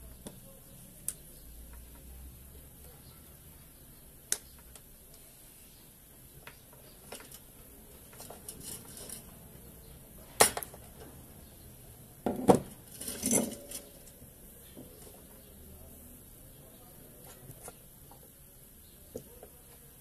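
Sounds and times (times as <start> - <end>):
tool clinking against metal box: 12.9 - 13.9.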